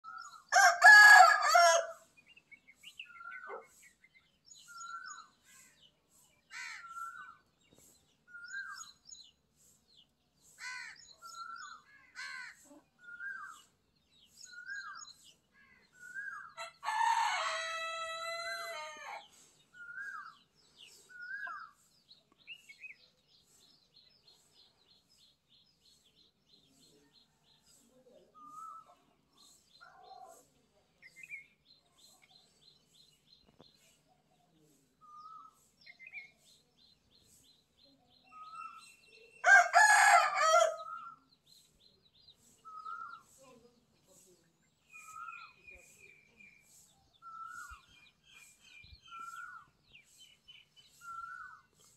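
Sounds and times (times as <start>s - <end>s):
rooster crowing: 0.5s - 2.0s, 39.4s - 40.9s
bird chirping: 2.1s - 16.6s, 19.2s - 51.9s.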